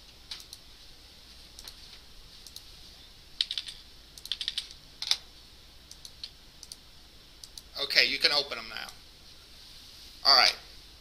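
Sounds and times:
computer keyboard keystrokes: 3.4s - 5.2s.

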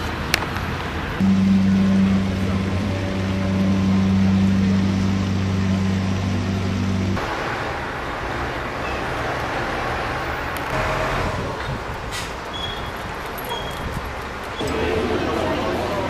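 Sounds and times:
road traffic rushing: 0.0s - 16.0s
steady low hum: 1.2s - 7.2s.

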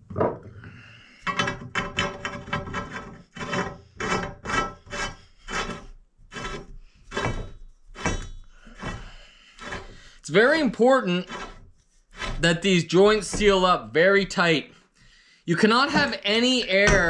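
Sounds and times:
tape rasping off roll: 1.3s - 14.4s.

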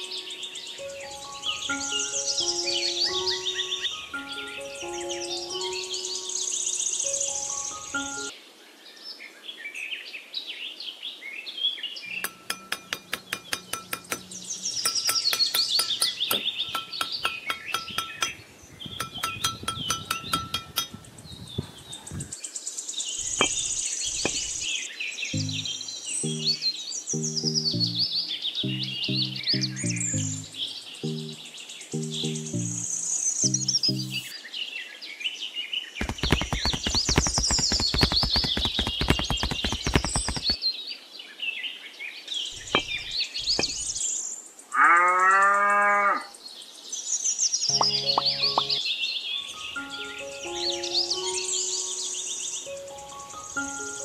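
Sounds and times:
birds chirping: 0.0s - 8.3s, 12.0s - 34.4s, 36.0s - 40.6s, 42.3s - 44.3s, 47.7s - 54.0s
sharp clicks: 12.2s - 18.4s, 36.0s - 40.6s
light chime-like clinking: 12.2s - 21.2s.

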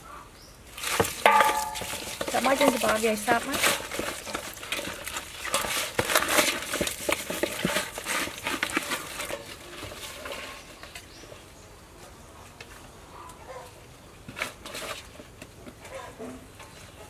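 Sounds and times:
crackling rustles of leaves: 0.0s - 17.0s
wet squelches of raw chicken: 0.6s - 7.0s.

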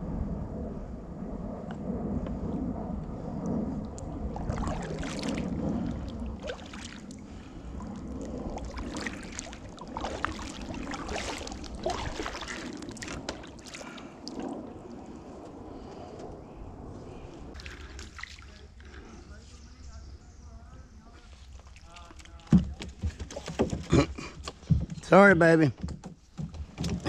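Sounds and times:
paddle splashing water: 4.0s - 15.0s, 17.5s - 19.1s, 21.3s - 24.0s.

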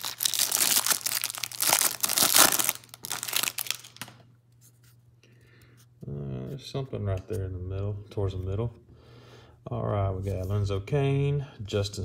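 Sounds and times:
plastic wrapper crinkling and tearing: 0.0s - 4.2s.

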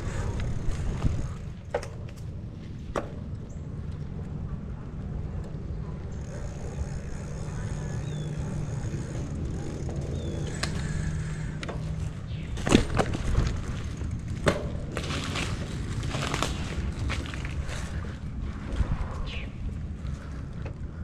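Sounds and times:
wind on microphone: 0.0s - 1.7s, 16.3s - 21.0s
bicycle clacking over bumps: 0.0s - 21.0s
bicycle tyres rumbling: 0.0s - 21.0s.

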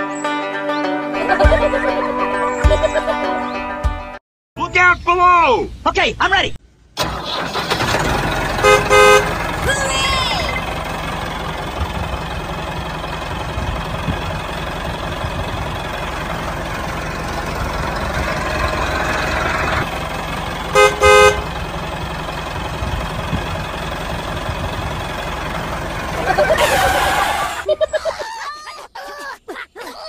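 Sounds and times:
tractor engine running: 7.0s - 27.9s
horn toots: 8.6s - 9.4s, 20.7s - 21.6s, 26.4s - 27.7s.

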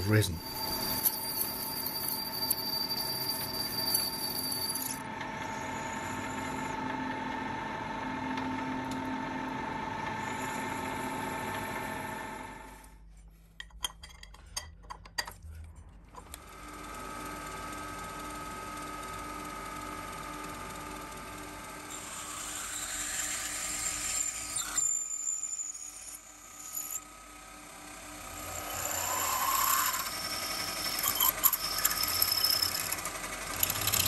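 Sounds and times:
metal lathe whine: 0.0s - 8.2s, 9.5s - 12.7s, 21.9s - 34.0s
drill spindle whine: 0.0s - 12.8s, 21.3s - 34.0s.

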